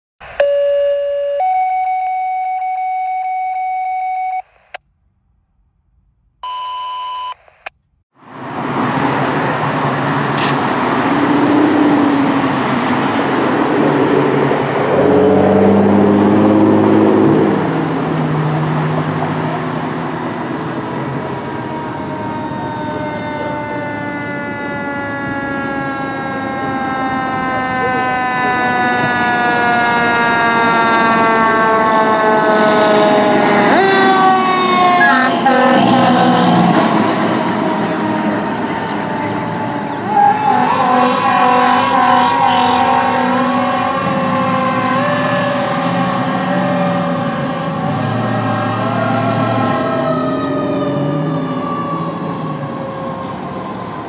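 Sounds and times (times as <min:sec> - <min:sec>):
siren winding up: 0:00.2 - 0:04.8, 0:20.9 - 0:29.1, 0:33.7 - 0:37.8
road traffic: 0:00.2 - 0:54.0
short electronic tones: 0:00.3 - 0:04.8, 0:35.0 - 0:35.8
fire engine engine running: 0:08.2 - 0:54.0.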